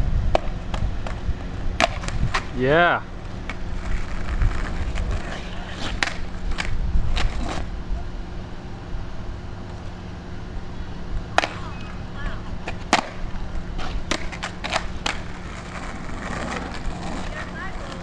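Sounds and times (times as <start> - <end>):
low steady hum: 0.0 - 18.0
skateboard clacking on asphalt: 0.3 - 2.5, 3.2 - 7.7, 11.2 - 18.0.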